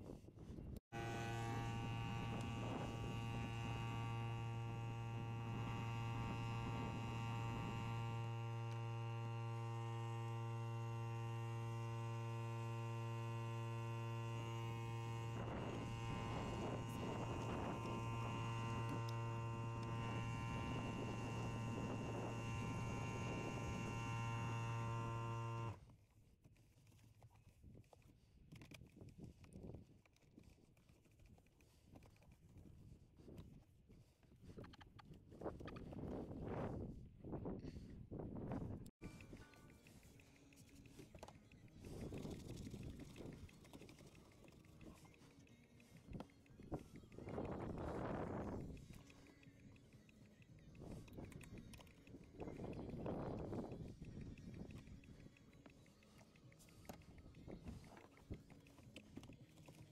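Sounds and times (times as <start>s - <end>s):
low electric hum: 0.9s - 25.8s.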